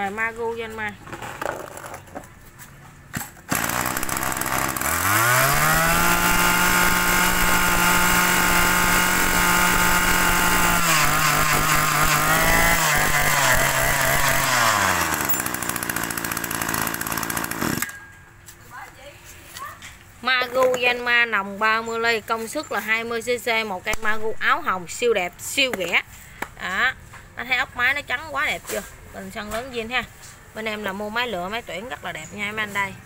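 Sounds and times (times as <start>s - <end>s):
brush-cutter engine running: 3.5s - 18.0s.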